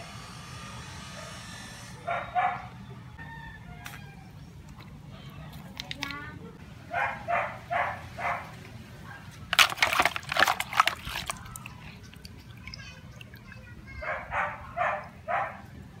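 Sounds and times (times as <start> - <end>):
dog barking: 2.0 - 2.7, 6.9 - 8.5, 14.0 - 15.6
filter splashing in water: 9.5 - 13.7.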